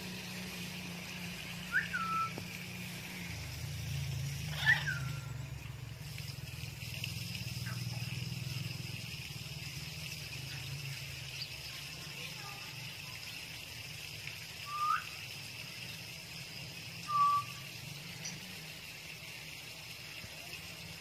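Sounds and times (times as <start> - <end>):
parakeet calls: 4.3 - 5.5.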